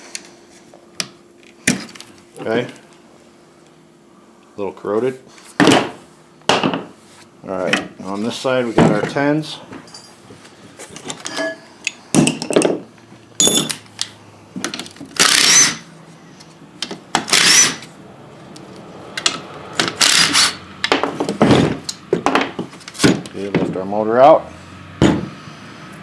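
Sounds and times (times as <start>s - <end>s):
power driver whirring: 15.1s - 15.9s, 17.2s - 17.9s, 18.6s - 20.6s.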